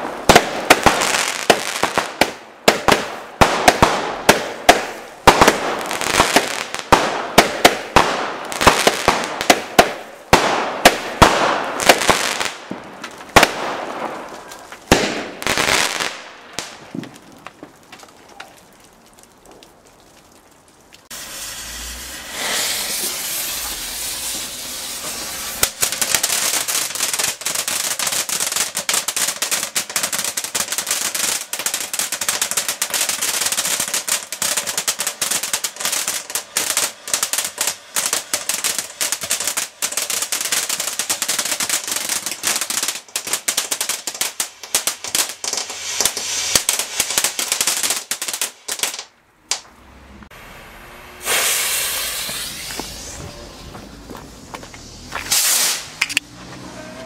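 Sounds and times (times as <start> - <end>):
firework rapid crackle: 0.0 - 19.8, 21.0 - 49.6, 51.2 - 56.2
firework fountain hissing: 21.0 - 49.1, 50.2 - 56.2.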